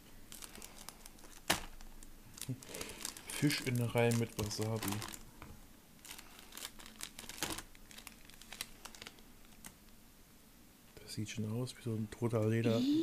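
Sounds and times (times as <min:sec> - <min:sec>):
plastic wrapper crinkling: 0:00.2 - 0:05.4, 0:06.0 - 0:09.9.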